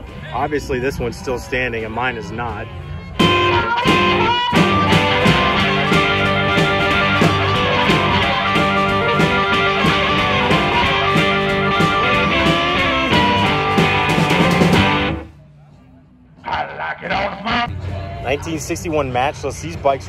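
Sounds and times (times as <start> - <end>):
rockabilly music with electric guitar: 3.1 - 15.3.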